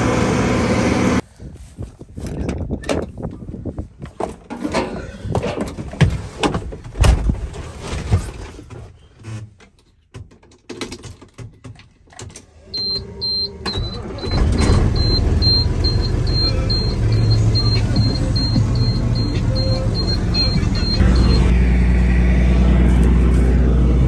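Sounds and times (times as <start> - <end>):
high-pitched warning beeper: 12.8 - 21.5
truck engine running: 12.8 - 24.0.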